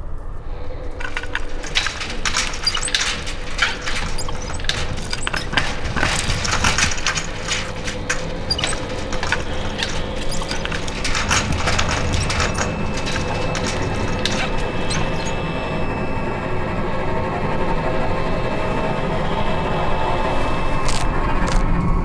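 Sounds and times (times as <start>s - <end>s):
irregular crackling and snapping: 1.0s - 15.8s, 20.9s - 21.7s.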